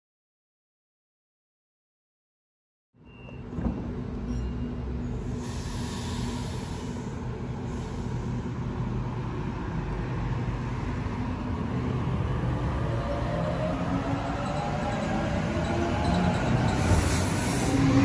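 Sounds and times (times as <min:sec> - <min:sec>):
air hissing: 0:05.3 - 0:08.4.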